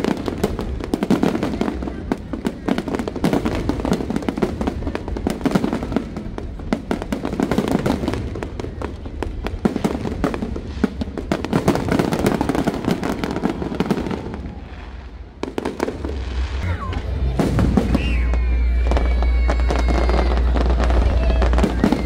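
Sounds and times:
fireworks bursting and crackling: 0:00.0 - 0:22.0.

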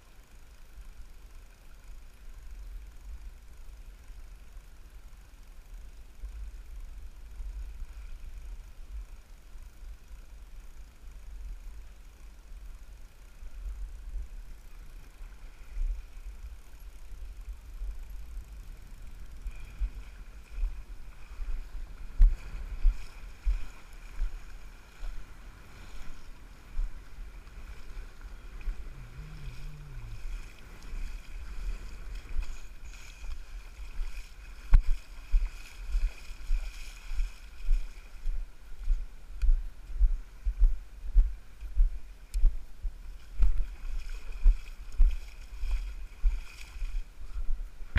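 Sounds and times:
water lapping against kayak hull: 0:19.5 - 0:38.2, 0:43.2 - 0:47.2.

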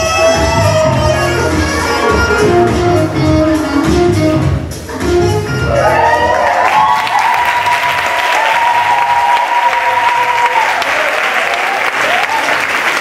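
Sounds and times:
dance music: 0:00.0 - 0:11.1
audience applauding and cheering: 0:05.5 - 0:13.0
high-pitched shouts: 0:05.7 - 0:11.1.

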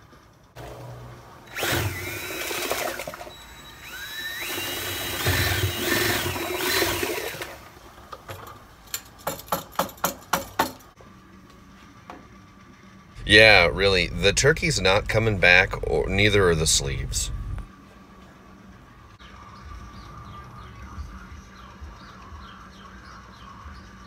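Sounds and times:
cordless drill whirring: 0:01.5 - 0:07.6.

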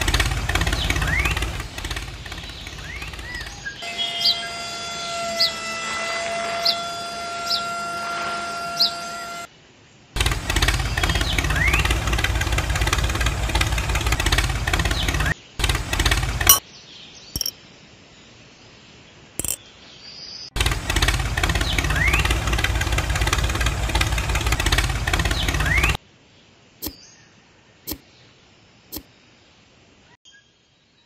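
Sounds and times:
short clicks: 0:19.4 - 0:19.6
small electric motor running: 0:20.6 - 0:26.0.

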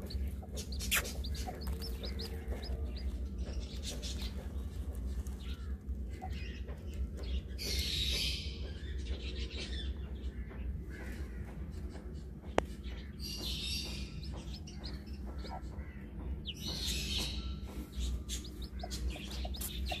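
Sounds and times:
low rumble: 0:00.0 - 0:13.2
chicks peeping: 0:00.0 - 0:20.0.

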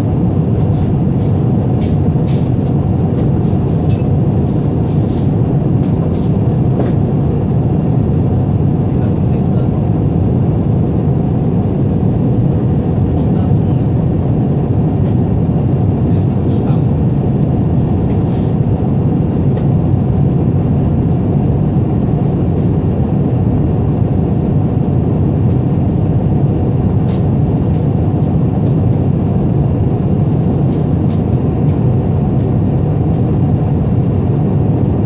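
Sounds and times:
airliner cabin engine drone: 0:00.0 - 0:35.0.

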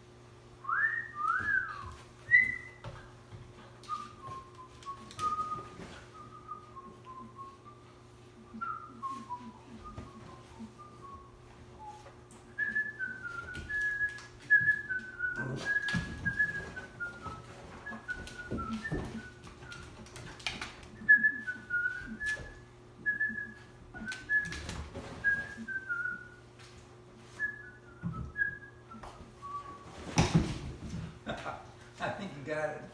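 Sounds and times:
faint steady hum: 0:00.0 - 0:32.9
person whistling high notes: 0:00.7 - 0:02.9.

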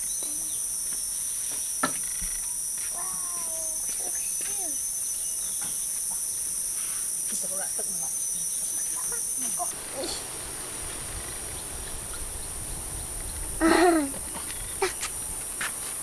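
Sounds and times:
insects droning: 0:00.0 - 0:16.0
girl calling out: 0:02.9 - 0:04.8.

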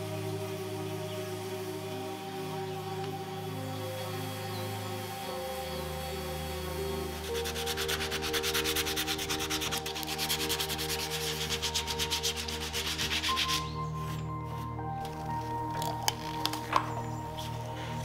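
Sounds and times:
soft background music: 0:00.0 - 0:18.0
sanding wood: 0:07.2 - 0:13.8.

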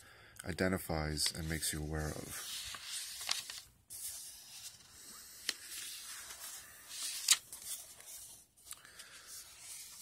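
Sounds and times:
book pages rustling: 0:01.2 - 0:10.0.

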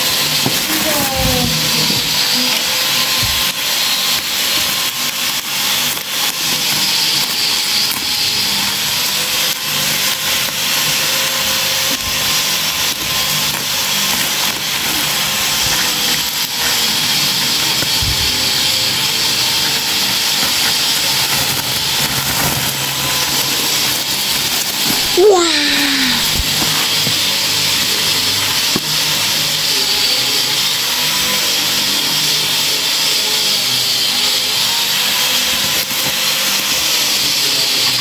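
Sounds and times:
plastic bags rustling and crinkling: 0:19.6 - 0:25.2.

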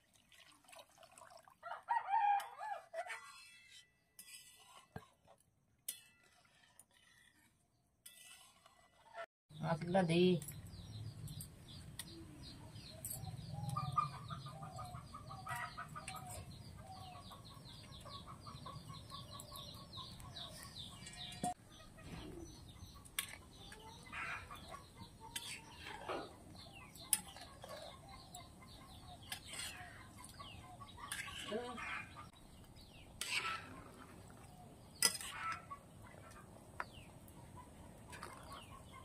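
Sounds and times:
chickens clucking: 0:13.5 - 0:39.0.

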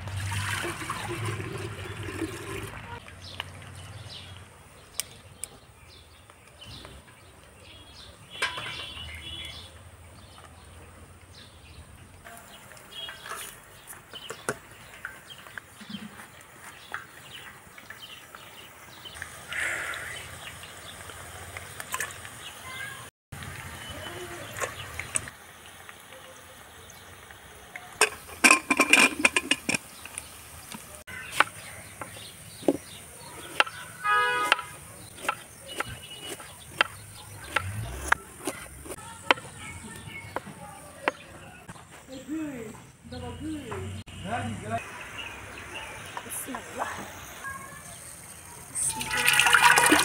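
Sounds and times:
pressure cooker lid clattering: 0:28.0 - 0:29.9.

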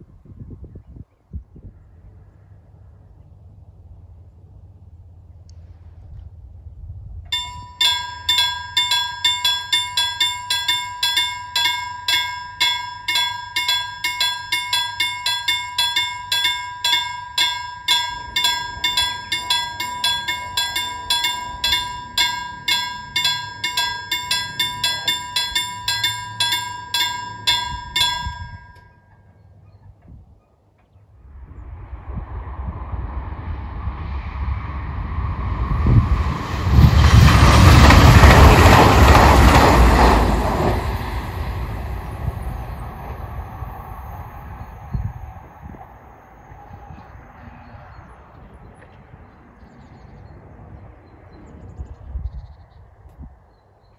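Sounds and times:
electric train approaching: 0:07.4 - 0:28.8, 0:31.9 - 0:48.2
level crossing bell ringing: 0:07.4 - 0:29.2.

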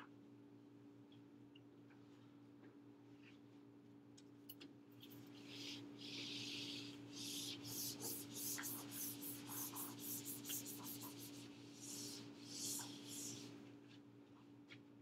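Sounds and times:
eraser wiping whiteboard: 0:05.3 - 0:13.6.

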